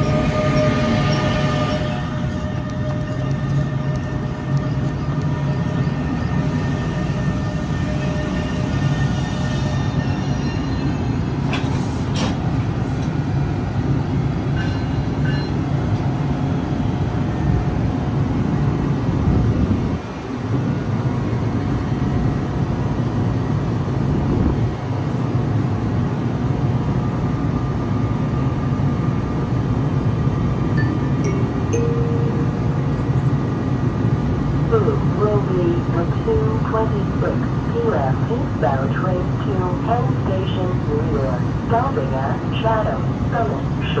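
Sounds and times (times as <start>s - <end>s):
electric locomotive rolling to a stop: 0.0s - 19.2s
locomotive humming: 0.0s - 44.0s.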